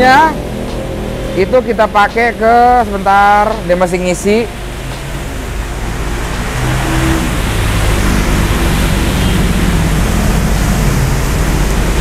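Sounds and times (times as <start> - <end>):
heavy rain falling: 4.5 - 12.0.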